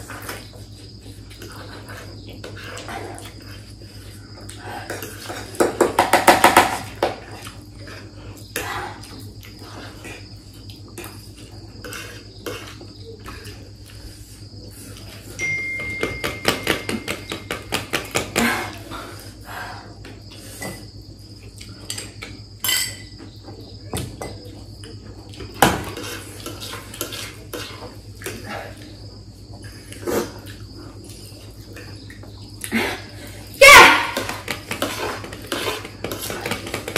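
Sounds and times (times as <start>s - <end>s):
forks clinking on plates: 15.4s - 17.6s.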